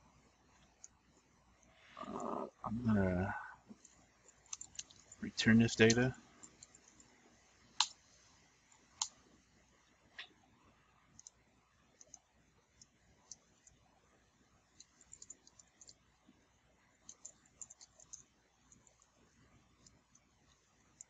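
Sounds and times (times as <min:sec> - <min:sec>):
computer keyboard typing: 0:03.8 - 0:05.2, 0:14.8 - 0:16.0, 0:17.0 - 0:19.1.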